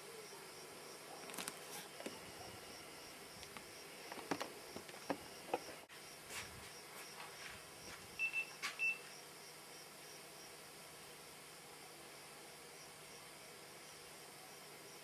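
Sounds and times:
microphone hiss: 0.0s - 15.0s
short high beeps: 8.2s - 9.0s.

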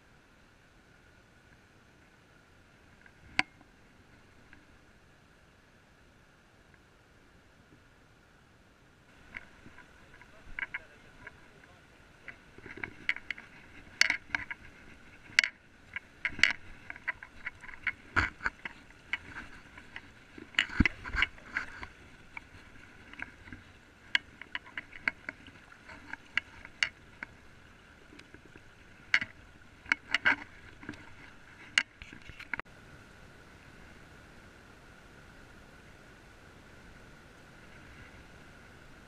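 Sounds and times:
water sloshing around legs: 9.1s - 32.6s.

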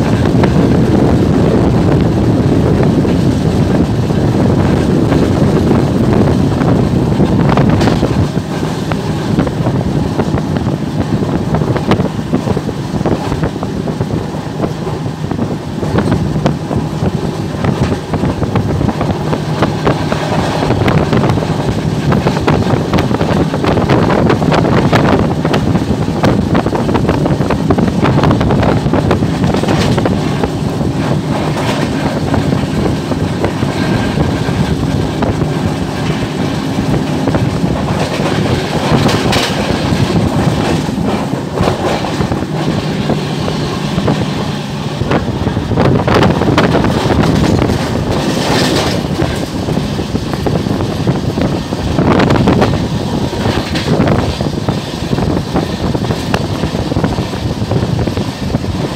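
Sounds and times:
train wheels rumbling on rails: 0.0s - 58.9s
rattling clatter: 17.6s - 58.3s.

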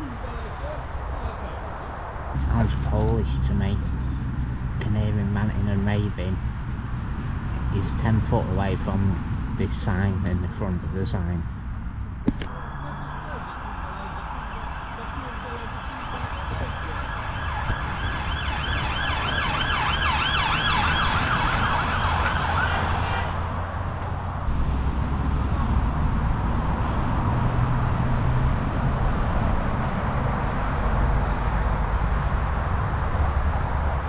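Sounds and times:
road traffic rumble: 0.0s - 34.0s
siren yelping: 12.5s - 23.4s.

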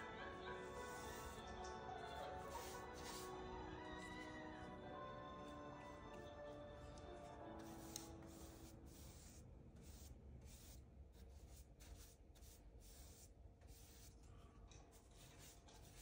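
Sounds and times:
paintbrush swishing on wood: 2.2s - 3.4s, 7.6s - 14.2s.

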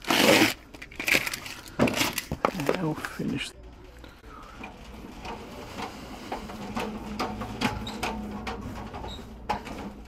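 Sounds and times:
cart wheels rumbling on floor: 4.5s - 10.0s.

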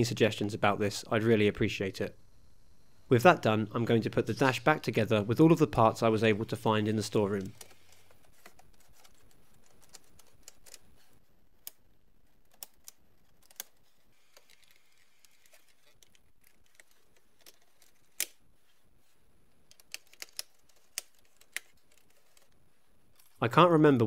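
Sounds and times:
plastic parts clicking and tapping: 19.6s - 22.6s.

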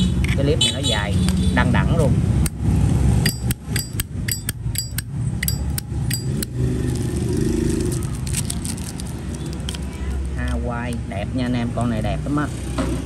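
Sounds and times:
street noise rumble: 0.0s - 13.0s.

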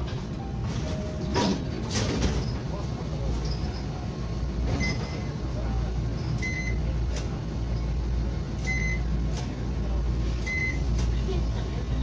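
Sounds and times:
low hum of stopped tram: 0.0s - 12.0s
card reader beeps: 4.7s - 5.3s, 6.3s - 6.9s, 8.6s - 9.1s, 10.4s - 11.0s.

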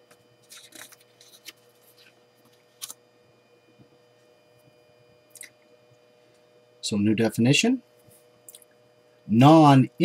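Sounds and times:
faint steady hum: 0.0s - 10.0s
paper rustling: 0.4s - 3.0s.

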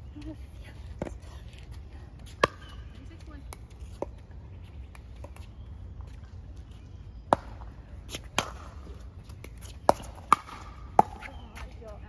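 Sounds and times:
paddles striking pickleball: 2.3s - 4.2s, 7.3s - 11.8s.

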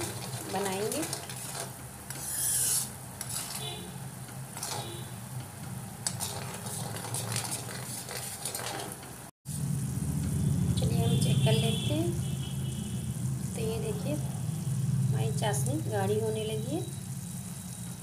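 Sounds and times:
metal spoon scraping iron pot: 0.0s - 3.8s, 4.5s - 5.1s, 6.0s - 8.9s
syrup bubbling and sizzling: 0.0s - 18.0s.

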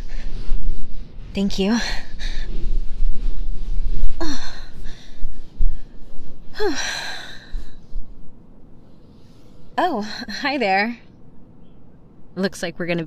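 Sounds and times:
woman sighing: 6.5s - 7.8s.

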